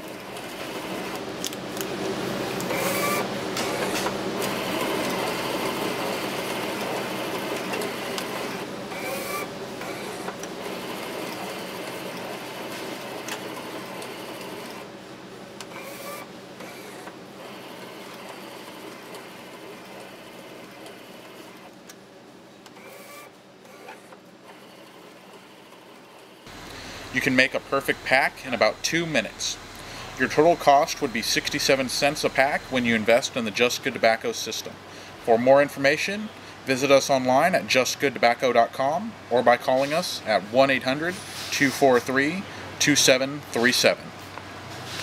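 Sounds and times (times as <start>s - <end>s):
machine whirring: 0.0s - 21.8s, 22.6s - 34.0s.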